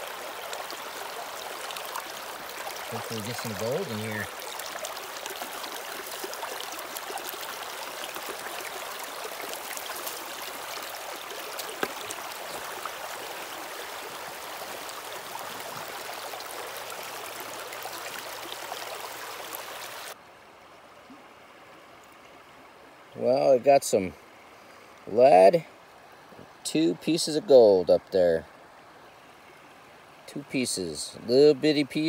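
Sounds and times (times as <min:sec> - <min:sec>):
water rushing through metal sluice: 0:00.0 - 0:20.2.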